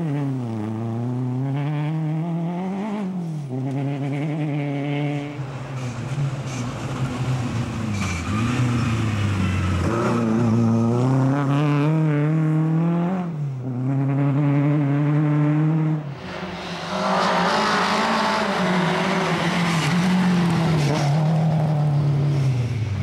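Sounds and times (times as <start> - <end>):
rally car engine at full throttle: 0.0 - 23.0
gravel hissing under tyres: 16.2 - 21.0.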